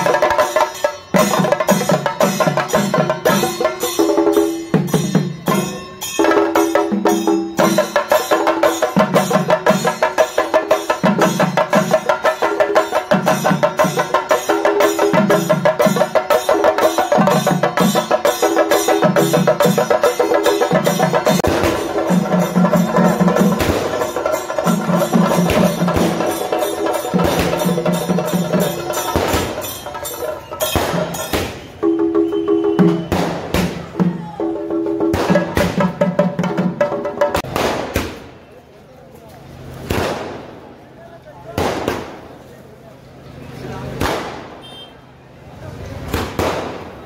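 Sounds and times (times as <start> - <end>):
drums beaten fast with sticks: 0.0 - 37.7
firecrackers going off: 21.4 - 28.1, 28.7 - 34.0, 35.1 - 36.0, 37.4 - 38.7, 39.6 - 42.6, 43.9 - 44.9, 46.0 - 47.0.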